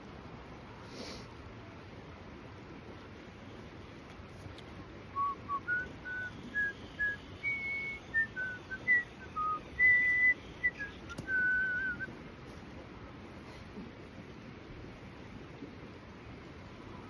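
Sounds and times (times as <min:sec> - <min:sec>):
woman whistling a tune: 0:05.2 - 0:12.1.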